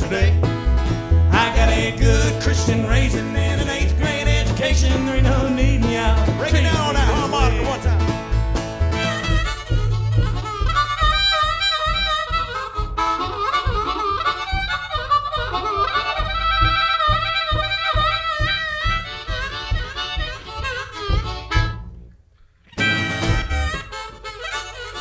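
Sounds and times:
acoustic band backing: 0.0 - 25.0
harmonica solo: 7.1 - 25.0.

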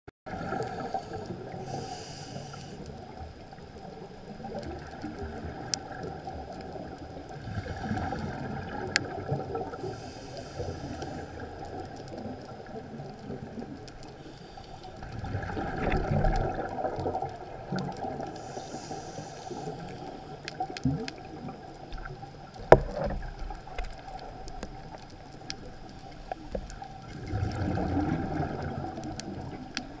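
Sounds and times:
rumble of exhaled bubbles: 0.3 - 14.2, 14.8 - 30.0
regulator inhale hiss: 0.4 - 3.0, 9.7 - 11.6, 14.0 - 15.0, 18.3 - 20.5
faint clicks: 0.5 - 30.0.

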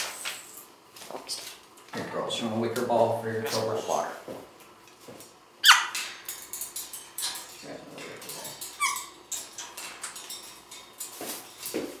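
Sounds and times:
parrot calls: 5.6 - 6.2, 8.7 - 9.2
rustling and clicking: 6.0 - 12.0.

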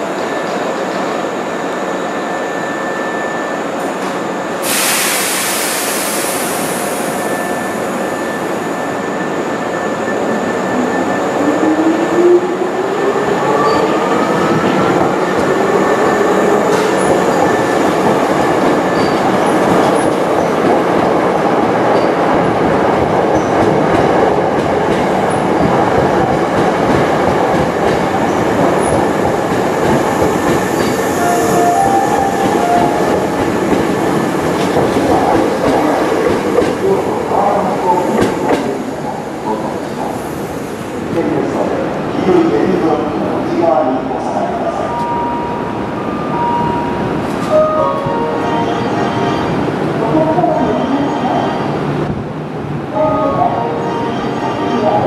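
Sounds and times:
rising whine of train: 0.0 - 55.0
train hiss: 4.6 - 8.2.

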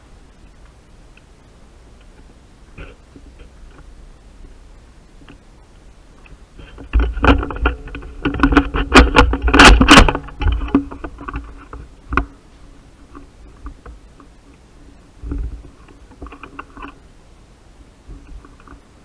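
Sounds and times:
sharp knocks clattering: 6.7 - 12.4.

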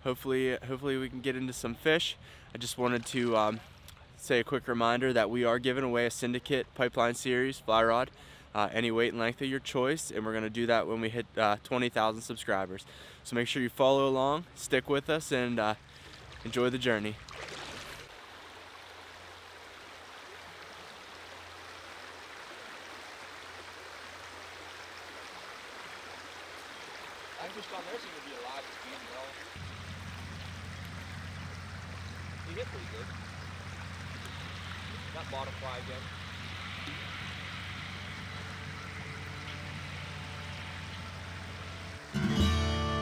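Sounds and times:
stream rushing: 15.8 - 43.0.

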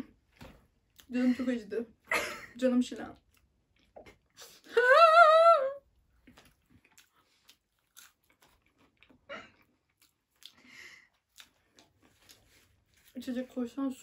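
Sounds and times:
person chewing: 3.2 - 4.4, 6.0 - 13.2.

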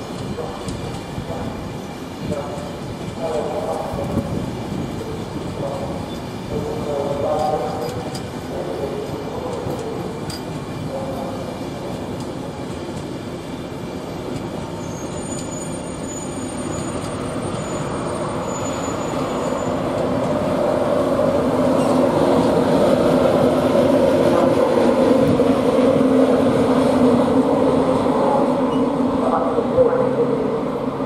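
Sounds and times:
train rolling on rails: 0.0 - 31.0.

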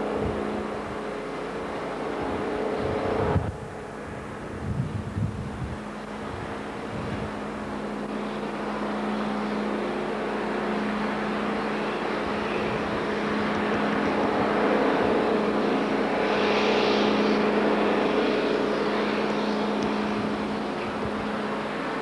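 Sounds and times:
sea noise: 0.0 - 22.0
tug engines droning: 0.0 - 22.0
wind rushing: 2.2 - 7.4.

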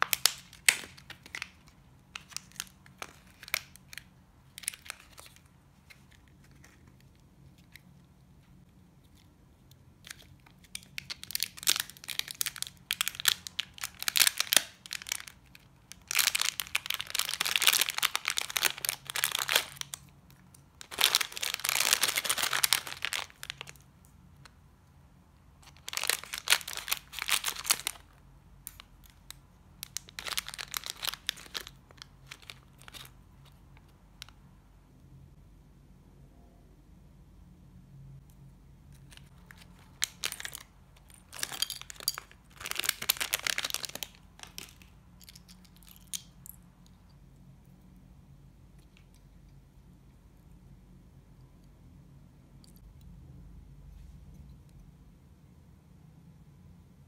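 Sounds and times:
plastic packaging crinkling and tearing: 0.0 - 7.6, 10.0 - 23.9, 25.6 - 33.6, 39.0 - 46.3.

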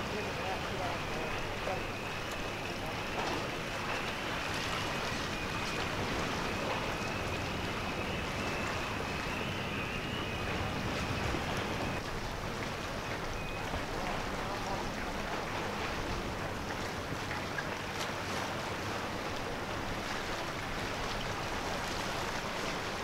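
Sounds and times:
faint thin whine: 0.0 - 12.1
water noise: 0.0 - 23.0
wind: 0.0 - 23.0.

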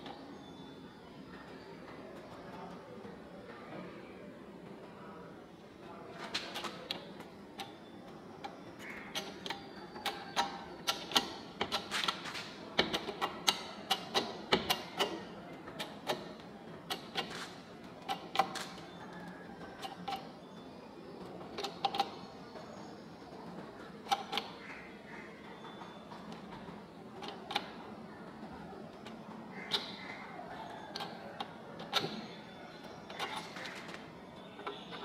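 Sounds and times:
jack pump handle clicks and knocks: 8.9 - 15.2.

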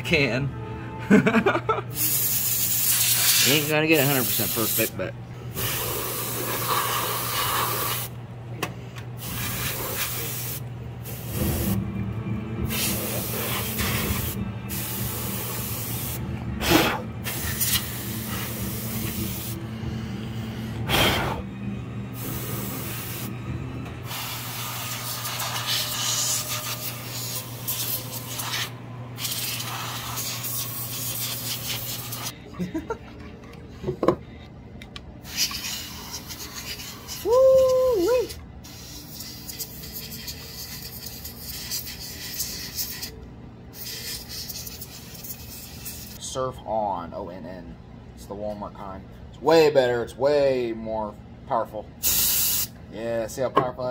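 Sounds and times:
compressed air hissing: 2.0 - 4.9, 5.5 - 8.1, 9.2 - 11.8, 12.6 - 21.5, 22.2 - 23.3, 24.0 - 32.3, 52.0 - 52.7.

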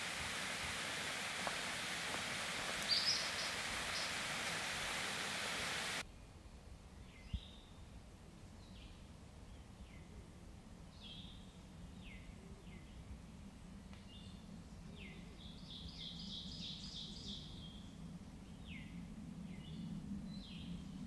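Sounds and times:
bird calling: 0.0 - 6.0
steady rushing noise: 0.0 - 6.0.

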